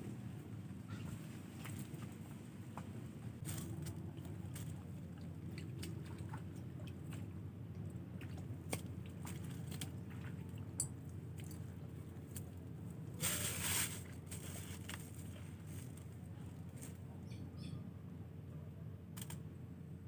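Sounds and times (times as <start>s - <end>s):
low background rumble: 0.0s - 20.0s
plastic bag rustling: 13.2s - 16.1s.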